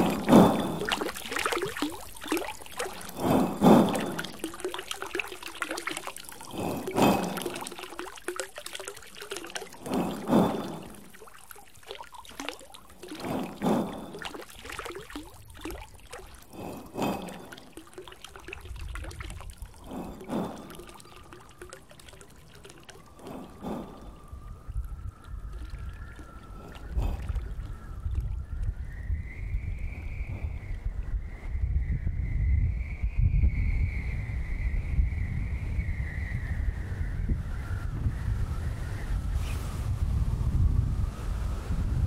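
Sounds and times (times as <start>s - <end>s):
water gushing: 0.0s - 28.6s
water trickling and pouring: 0.0s - 31.0s.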